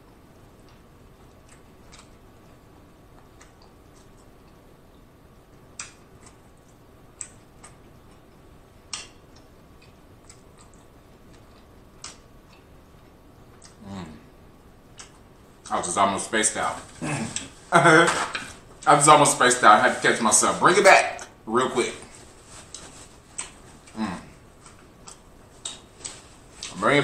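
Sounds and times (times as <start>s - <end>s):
faint steady hiss: 0.0s - 27.0s
wet chewing smacks: 0.6s - 4.6s, 5.8s - 12.7s, 13.5s - 13.8s, 22.7s - 24.0s, 24.6s - 26.8s.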